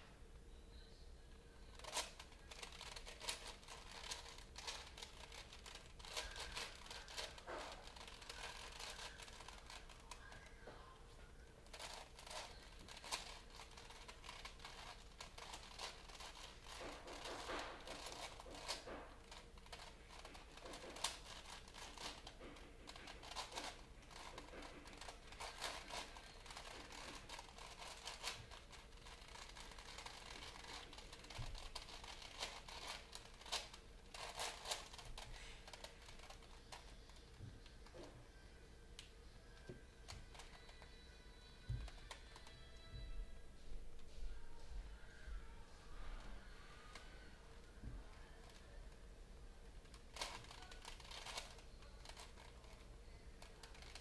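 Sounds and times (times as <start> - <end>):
paper crinkling: 1.7 - 10.6, 11.6 - 38.1.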